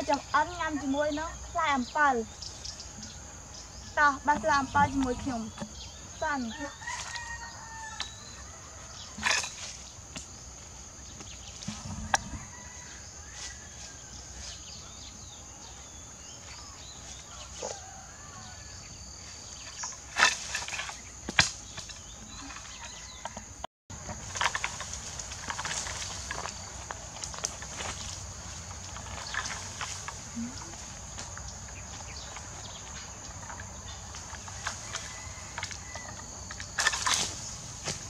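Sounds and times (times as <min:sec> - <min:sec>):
birds chirping: 0:00.0 - 0:38.0
high insect drone: 0:00.0 - 0:38.0
leaves rustling: 0:00.0 - 0:38.0
pole knocking branches: 0:09.0 - 0:12.8, 0:19.6 - 0:38.0.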